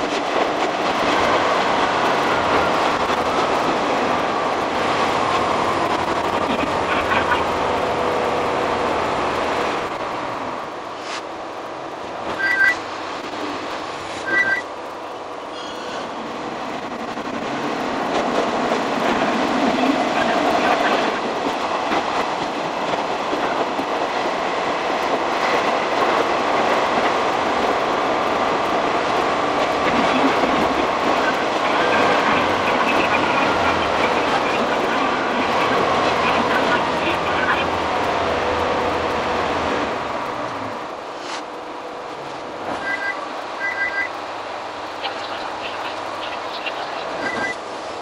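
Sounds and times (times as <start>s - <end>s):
diesel railcar running: 0.0s - 48.0s
rail clatter: 0.0s - 48.0s
short two-note beeps: 12.4s - 12.8s, 14.3s - 14.7s, 42.8s - 44.1s.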